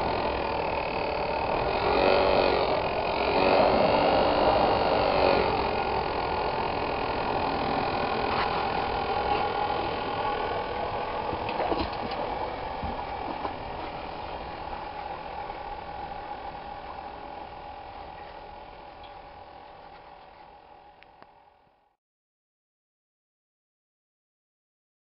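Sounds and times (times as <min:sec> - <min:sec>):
electric blower fan humming: 0:00.0 - 0:21.9.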